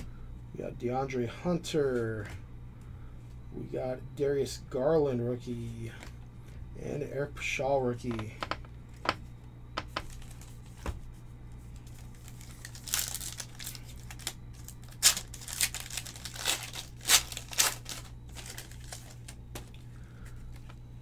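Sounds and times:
foil wrapper crinkling: 11.8s - 19.8s.

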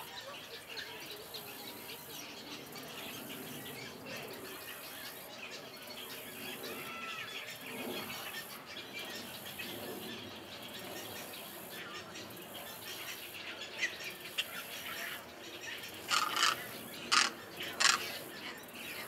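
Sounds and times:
egrets squawking and squealing: 16.0s - 18.2s
egret gliding calls: 16.1s - 18.1s.

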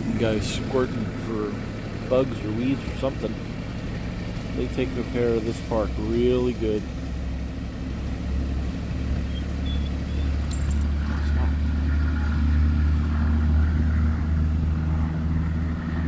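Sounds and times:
tractor engine humming: 0.0s - 16.0s.

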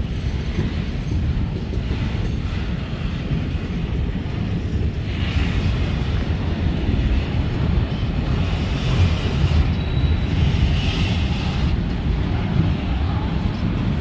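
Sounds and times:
freight train rumbling past: 0.0s - 14.0s.

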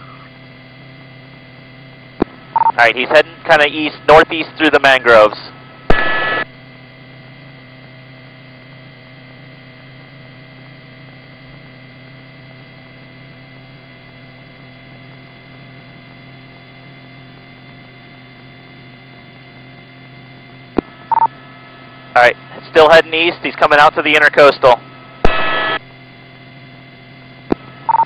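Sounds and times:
steady electrical hum: 0.0s - 28.0s
constant tones: 1.6s - 6.5s, 19.2s - 28.0s.

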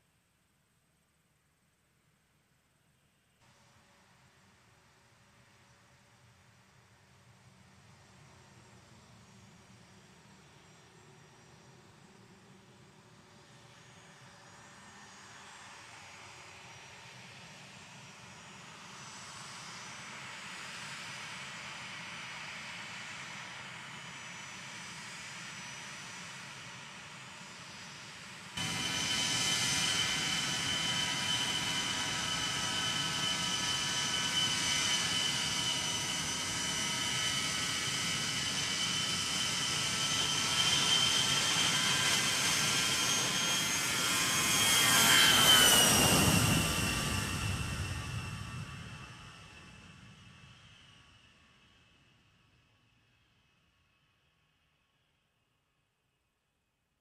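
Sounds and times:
jet engines whining: 28.5s - 50.4s
jet rush: 28.6s - 36.4s.

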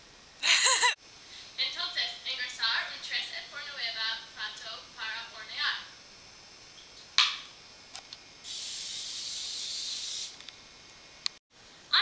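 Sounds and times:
aerosol spray hissing: 8.4s - 10.4s.

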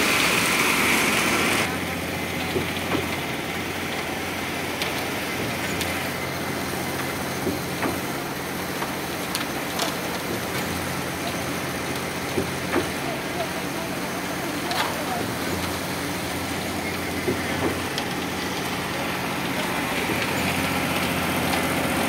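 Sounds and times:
engine running steadily: 0.0s - 22.0s
concrete pump knocking: 8.8s - 22.0s.

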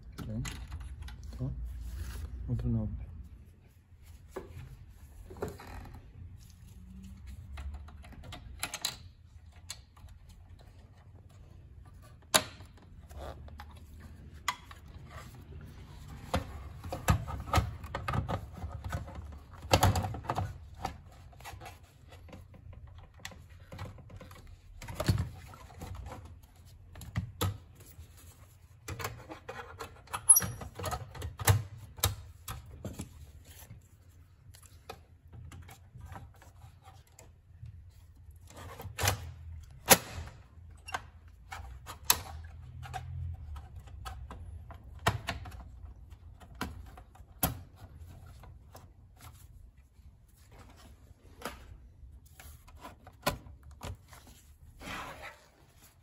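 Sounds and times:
computer case parts clicking and knocking: 16.0s - 21.4s, 28.8s - 33.3s, 37.9s - 49.0s.

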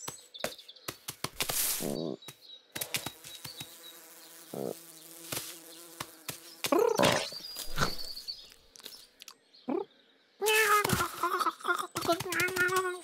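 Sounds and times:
cartoon fly buzzing: 2.9s - 8.1s.

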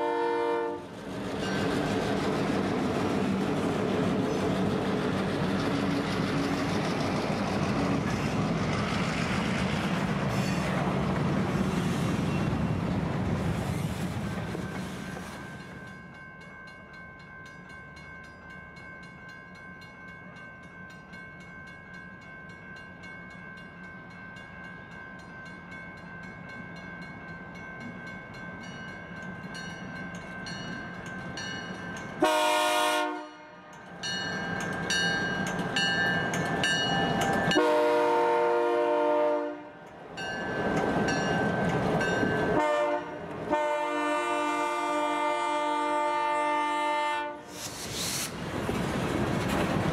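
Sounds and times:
locomotive horn blasts: 0.0s - 0.9s, 32.2s - 33.7s, 37.5s - 39.7s, 42.6s - 47.5s
diesel locomotive approaching: 0.0s - 49.9s.

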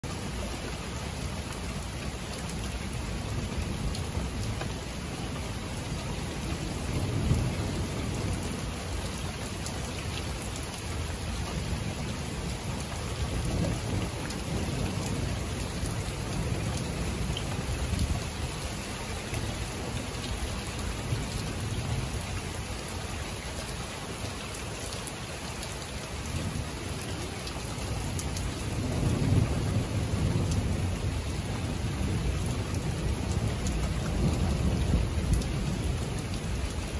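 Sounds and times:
steady rain falling: 0.0s - 36.9s
thunder rumbling: 5.9s - 9.1s, 27.8s - 36.9s.

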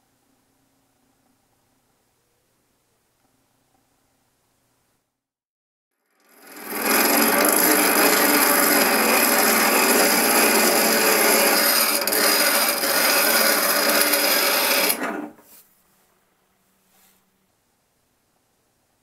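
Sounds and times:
steel grinding on grinder wheel: 6.0s - 15.4s.

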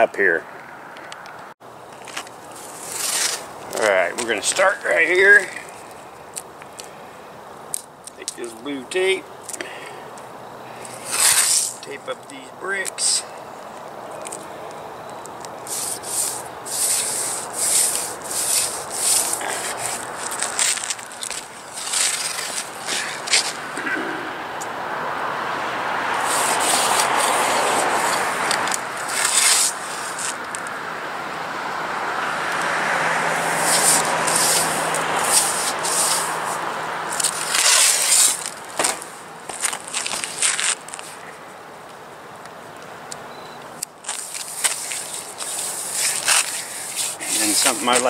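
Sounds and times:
passing road traffic: 0.0s - 48.0s
tape pulled off roll rasping: 2.0s - 3.5s, 11.0s - 11.8s, 15.6s - 23.9s, 26.2s - 30.7s, 33.4s - 41.2s, 44.0s - 48.0s.

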